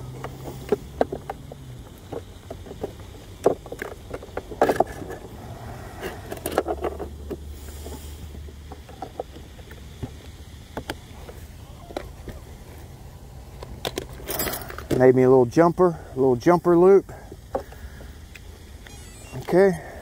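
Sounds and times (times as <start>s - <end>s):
knocks clicks and rustles of handling: 0.1s - 5.4s, 6.0s - 12.4s, 13.6s - 15.1s.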